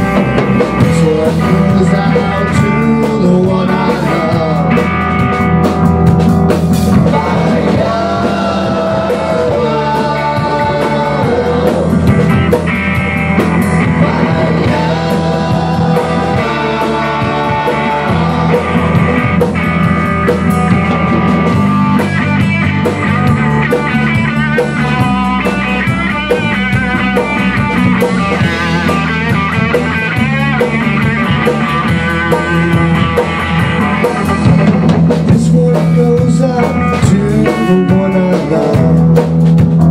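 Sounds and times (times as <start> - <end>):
drum kit: 0.0 - 39.9
electric bass: 0.0 - 39.9
electric guitar: 0.0 - 39.9.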